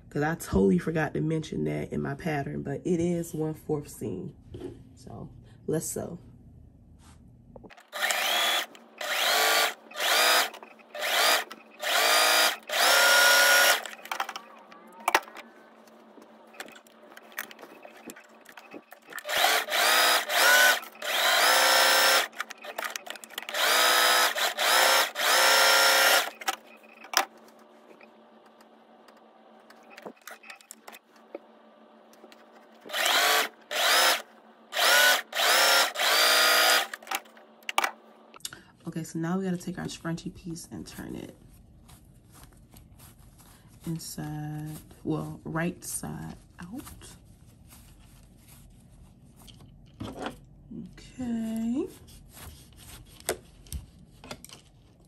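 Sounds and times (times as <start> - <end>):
sewing machine stitching: 7.7 - 15.4, 16.5 - 27.2, 32.8 - 37.2.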